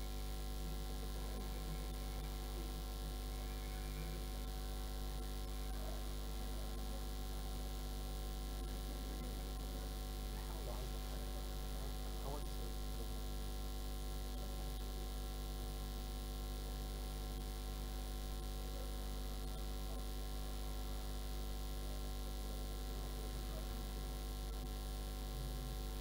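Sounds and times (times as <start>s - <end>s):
electrical mains hum: 0.0s - 26.0s
faint murmuring voices: 0.6s - 13.6s, 22.9s - 24.0s.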